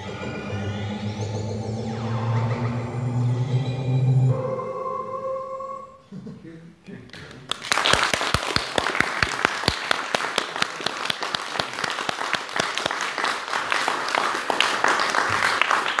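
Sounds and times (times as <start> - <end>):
audience applauding: 7.2 - 16.0
loud claps close by: 7.2 - 16.0.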